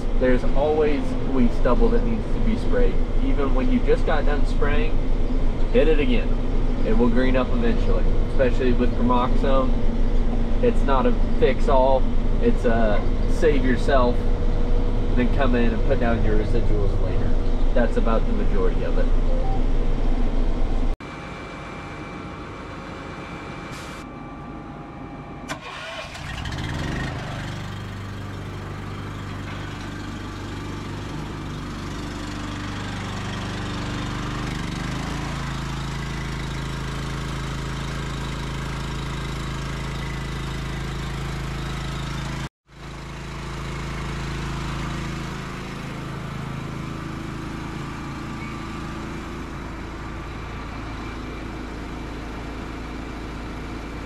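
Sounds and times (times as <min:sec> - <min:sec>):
small gasoline engine starting: 0:25.5 - 0:54.0.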